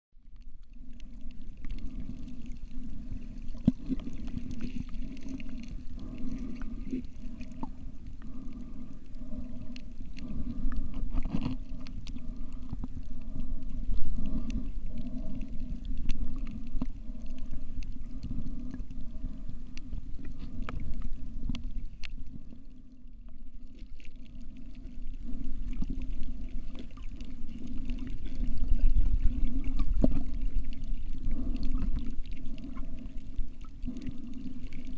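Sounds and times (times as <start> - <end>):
muffled underwater water rumble: 0.1 - 34.9
faint scattered clicks: 0.3 - 22.4.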